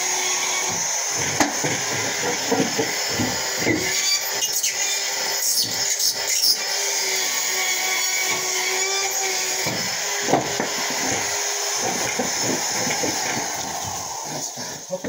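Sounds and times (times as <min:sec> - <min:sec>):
screw gun whining: 0:00.0 - 0:15.0
knocks: 0:00.6 - 0:04.0, 0:09.6 - 0:14.6.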